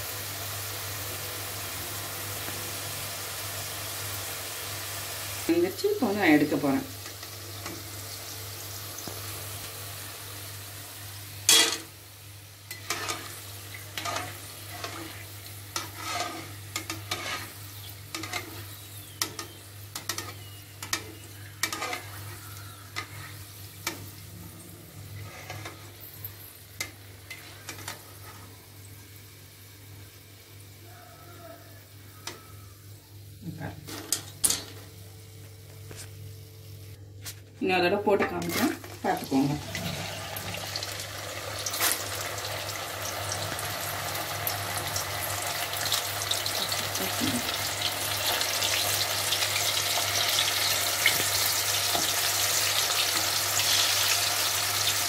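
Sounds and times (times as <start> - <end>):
oil sizzling in a pan: 0.0 - 37.0, 38.5 - 55.0
metal skimmer scraping a pan: 12.7 - 18.6, 19.4 - 23.4, 25.2 - 26.1.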